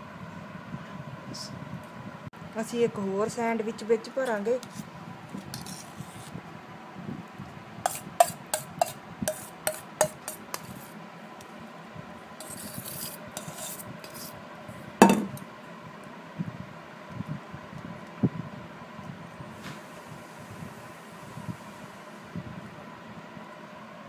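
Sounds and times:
soft scraping of spreading paste: 4.3s - 6.4s, 7.8s - 11.0s, 12.4s - 14.4s
spoon clinking against steel bowl: 7.9s - 10.7s.

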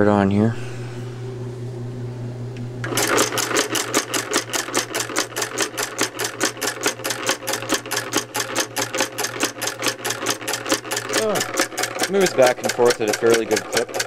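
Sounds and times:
solenoid engine clattering: 2.8s - 14.0s.

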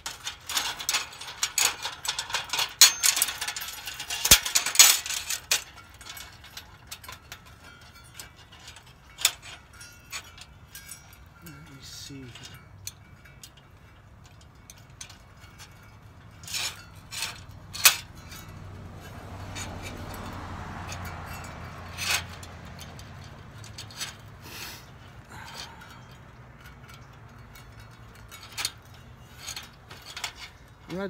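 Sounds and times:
chain rattling against metal: 0.0s - 31.0s.

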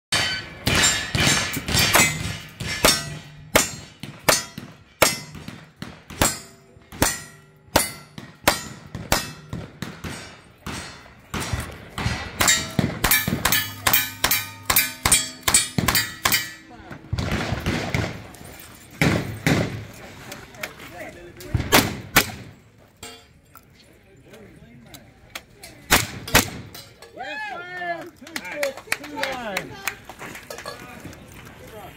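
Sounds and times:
steel targets ringing: 0.1s - 5.5s, 6.2s - 9.5s, 12.4s - 16.9s
rifle shots: 17.1s - 18.3s.

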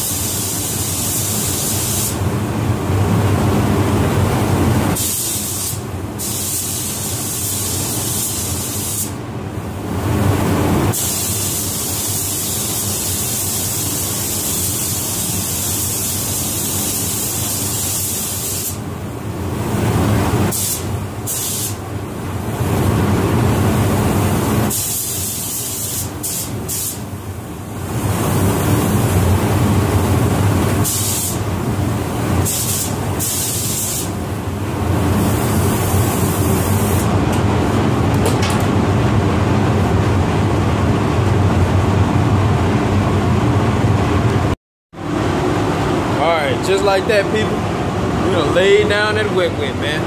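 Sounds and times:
spray gun hissing: 0.0s - 2.2s, 5.0s - 9.2s, 10.9s - 18.8s, 20.5s - 21.8s, 24.7s - 27.0s, 30.8s - 31.4s, 32.4s - 34.2s.

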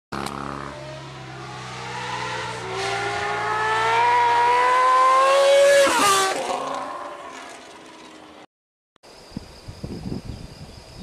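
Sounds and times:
motorcycle engine accelerating past: 0.2s - 8.4s.

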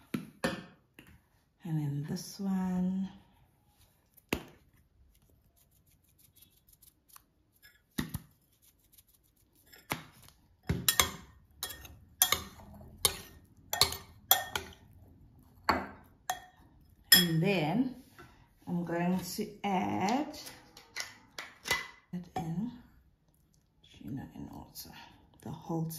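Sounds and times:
spoon scraping glass bowl: 7.5s - 7.9s, 9.5s - 10.0s, 10.9s - 14.8s.

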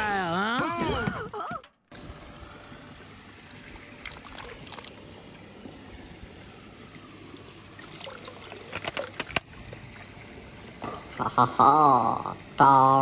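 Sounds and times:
water-like wash noise: 0.0s - 13.0s.

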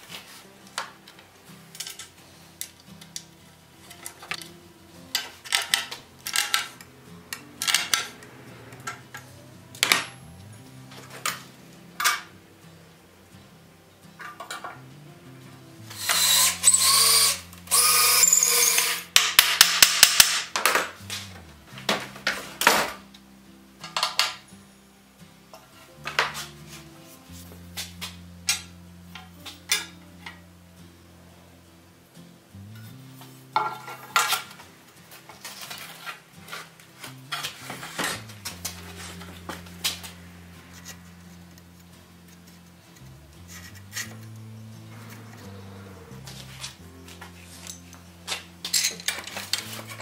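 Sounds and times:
cordless drill driving into wood: 15.9s - 19.1s.

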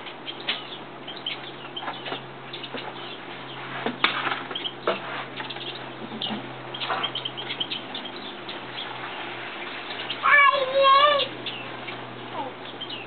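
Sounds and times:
steady low hum: 0.0s - 13.0s
rustling and clicking of nest: 1.4s - 7.4s.

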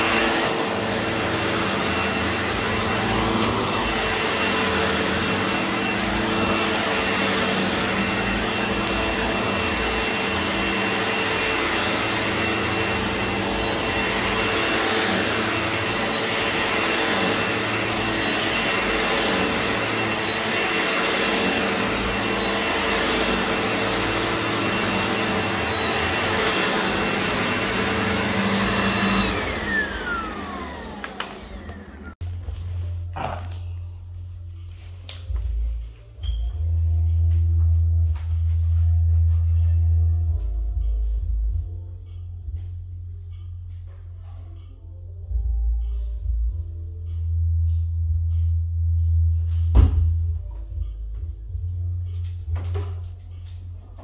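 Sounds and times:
vacuum cleaner running: 0.0s - 32.9s.

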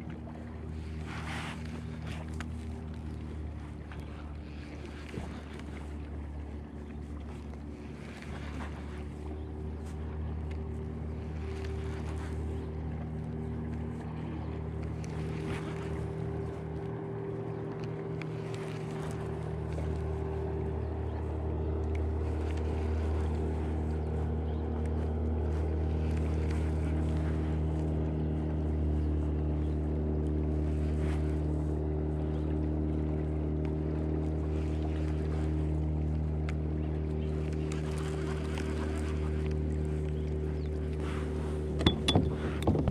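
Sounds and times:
motorboat engine hum: 0.0s - 42.9s.

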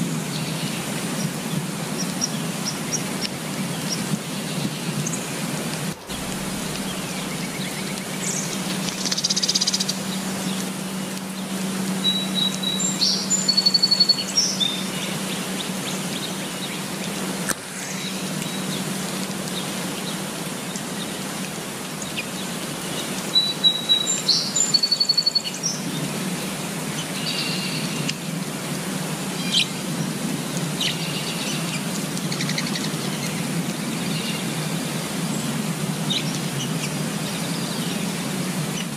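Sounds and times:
rain on foliage: 0.0s - 38.9s
songbirds chirping: 0.1s - 17.3s, 21.9s - 26.2s.

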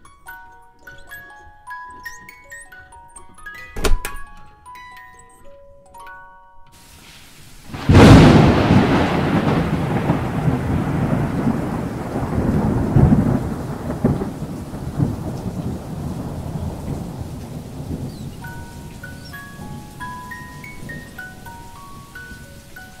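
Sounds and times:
rain: 6.8s - 23.0s
thunder clap and rolling rumble: 7.7s - 21.2s.

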